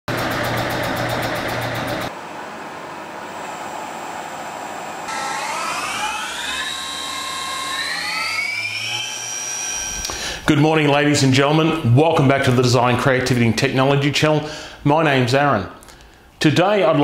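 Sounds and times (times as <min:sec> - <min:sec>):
machine spindle whine: 0:00.1 - 0:10.2.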